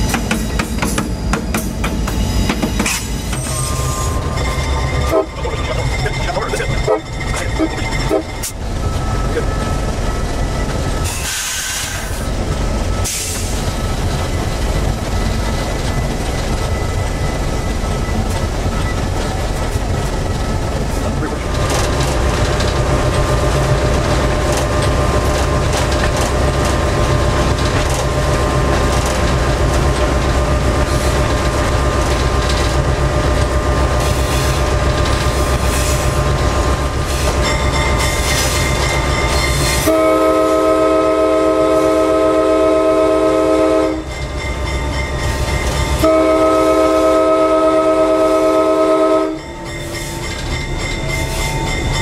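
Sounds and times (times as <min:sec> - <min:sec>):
diesel locomotive engine rumble: 0:00.0 - 0:52.0
locomotive air horn blast: 0:08.1 - 0:08.4, 0:39.8 - 0:44.0, 0:46.0 - 0:49.4.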